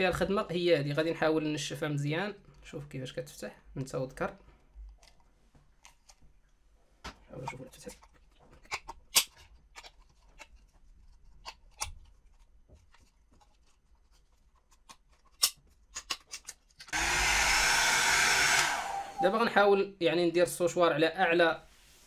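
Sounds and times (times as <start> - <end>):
hair dryer running: 16.9 - 19.4.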